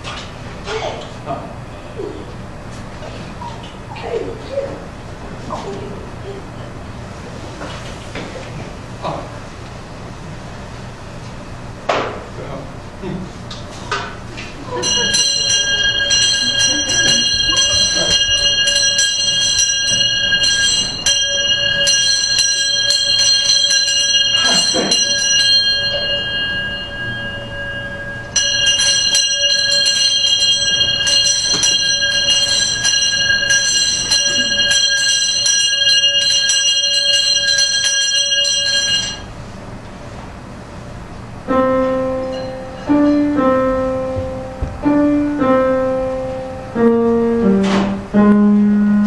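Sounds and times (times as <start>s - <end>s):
bell ringing fast clang: 14.7s - 39.4s, 42.2s - 43.3s
slow piano melody: 41.4s - 49.0s.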